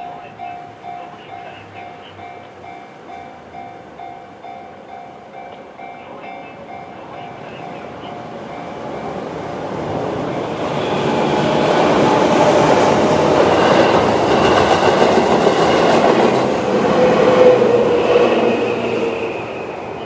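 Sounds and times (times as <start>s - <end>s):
crossing warning bell: 0.0s - 9.4s
train wheels clattering over rails: 4.7s - 20.0s.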